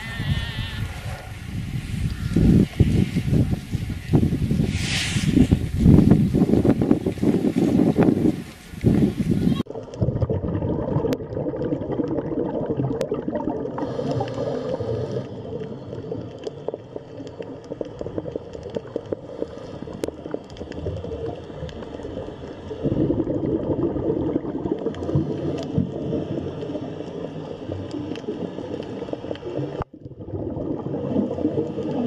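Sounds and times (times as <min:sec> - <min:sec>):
brief hiss: 0:04.6 - 0:05.6
underwater gurgling bubbles: 0:05.5 - 0:32.0.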